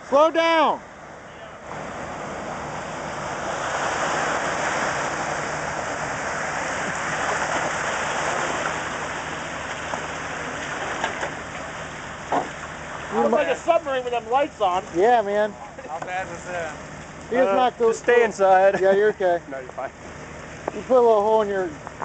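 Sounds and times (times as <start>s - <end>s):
river water rushing and splashing: 1.6s - 18.8s, 19.9s - 21.2s.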